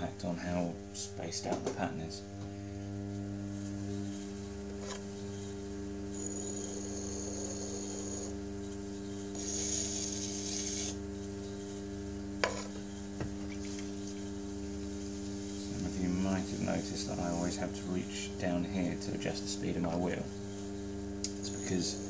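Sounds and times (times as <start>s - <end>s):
pottery wheel humming: 0.0s - 22.0s
metal tool scraping clay: 6.1s - 8.4s, 9.1s - 11.0s.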